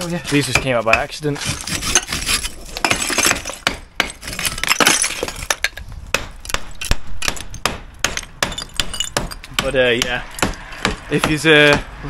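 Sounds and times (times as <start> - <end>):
bricks clinking and clattering: 0.0 - 9.6
hammer knocking on brickwork: 0.4 - 1.2, 6.1 - 12.0.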